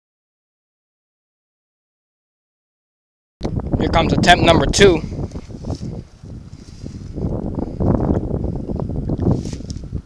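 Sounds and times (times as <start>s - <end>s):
wind buffeting microphone: 3.4s - 10.0s
camera handling rustle: 9.2s - 9.9s.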